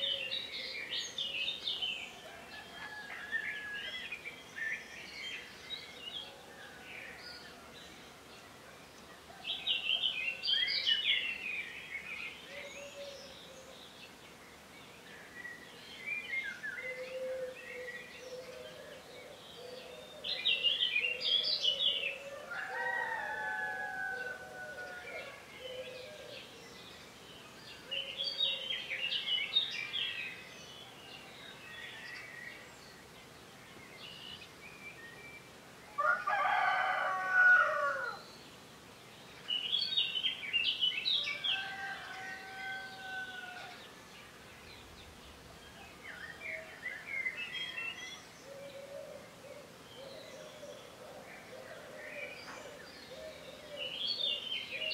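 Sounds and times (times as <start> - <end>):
songbirds chirping: 0.0 - 54.9
rooster crowing: 22.3 - 25.5, 36.0 - 38.2, 41.2 - 43.8.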